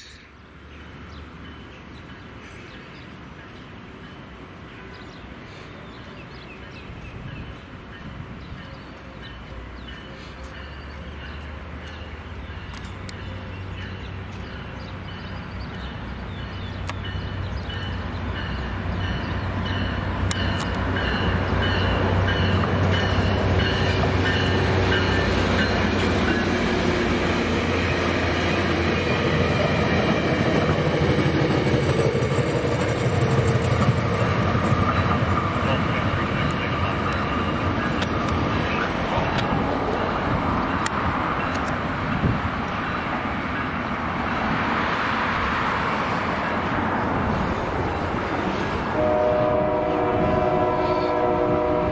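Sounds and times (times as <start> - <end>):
diesel train engine drone: 0.0 - 51.9
train rail noise: 0.0 - 51.9
crossing bell dinging: 6.6 - 26.9, 34.8 - 41.7.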